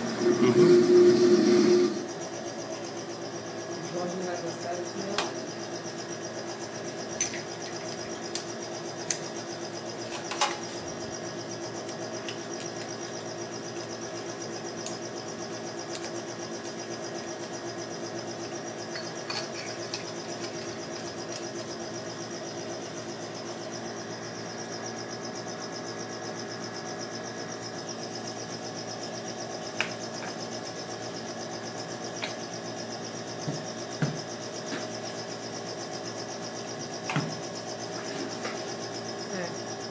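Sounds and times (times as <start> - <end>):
steady mechanical hum: 0.0 - 39.9
metal parts clicking and clinking: 7.2 - 9.2, 18.9 - 21.5.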